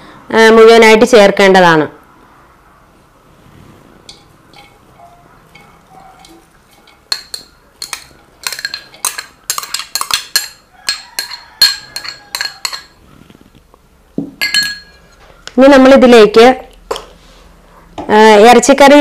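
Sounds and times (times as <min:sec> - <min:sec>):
metal spoon clinking on glass bowl: 0:04.1 - 0:13.0, 0:14.4 - 0:15.2.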